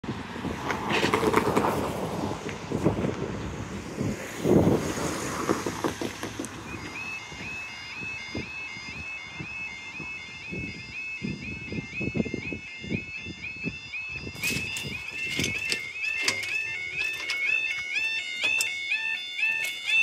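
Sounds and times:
wind on microphone: 0.0s - 17.1s
road traffic: 0.0s - 20.0s
warbling level crossing alarm: 6.6s - 20.0s.

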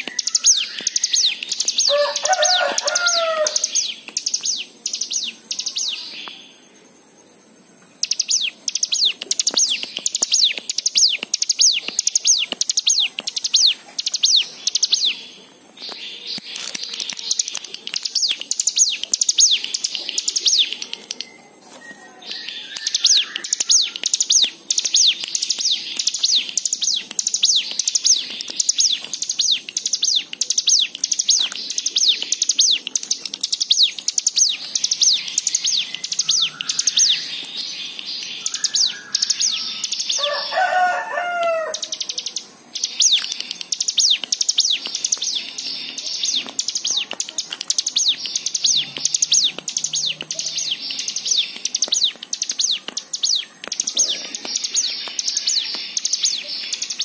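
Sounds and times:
lower slurred bird call: 0.0s - 3.9s
bird singing high sharp notes: 0.0s - 6.6s, 8.0s - 57.0s.

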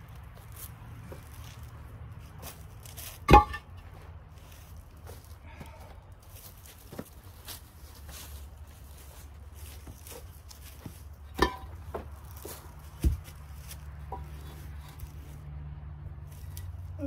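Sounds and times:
footsteps on dirt: 0.0s - 15.4s
concrete block knocking: 3.3s - 3.7s, 11.4s - 12.1s.

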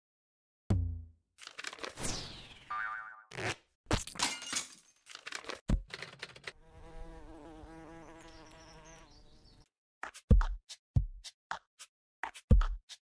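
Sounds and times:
fly-like buzzing: 6.6s - 9.4s.

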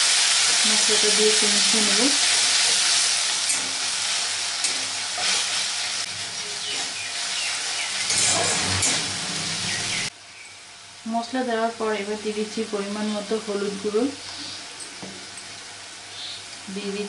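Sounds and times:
paste sizzling in hot oil: 0.0s - 10.1s
spatula scraping pan: 8.0s - 9.7s.

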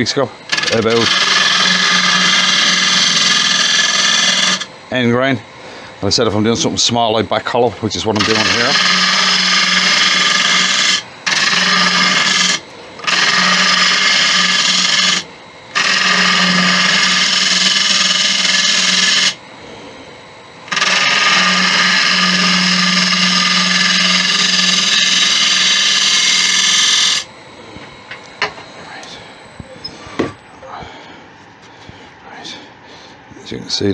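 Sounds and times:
gouge cutting spinning wood: 0.0s - 4.7s, 8.1s - 19.4s, 20.7s - 27.3s
lathe low hum: 0.0s - 33.8s.

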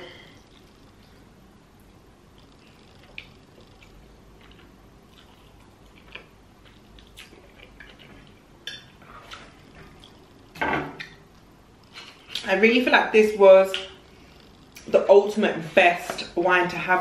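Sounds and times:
person chewing spaghetti: 0.3s - 12.4s.

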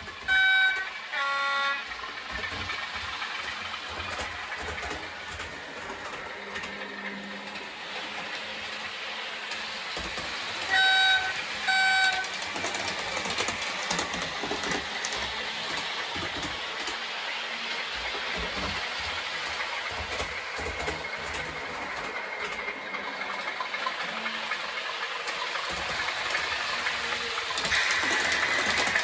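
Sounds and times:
model locomotive running noise: 0.0s - 29.0s
short horn blasts: 0.2s - 1.9s, 10.7s - 12.3s.

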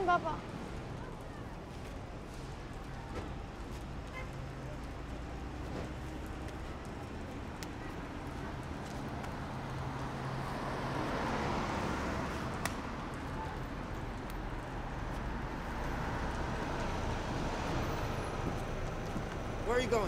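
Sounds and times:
cars passing on street: 0.0s - 20.0s.

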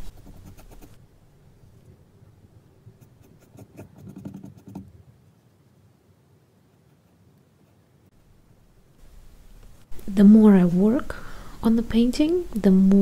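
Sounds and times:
paintbrush strokes on canvas: 0.0s - 1.0s.

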